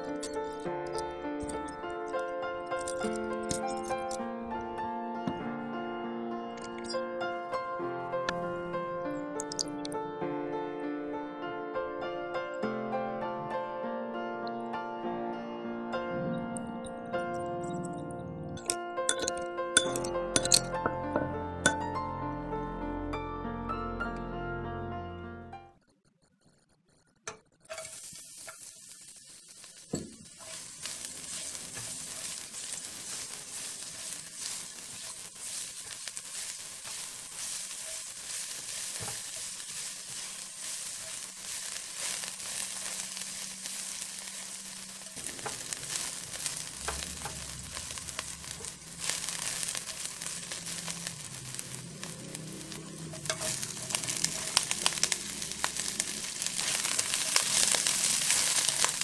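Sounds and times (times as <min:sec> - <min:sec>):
food sizzling in hot oil: 0:00.0 - 0:04.6, 0:06.6 - 0:07.0, 0:09.4 - 0:10.0, 0:18.6 - 0:21.9, 0:27.7 - 0:59.0
spatula stirring in wok: 0:27.7 - 0:59.0.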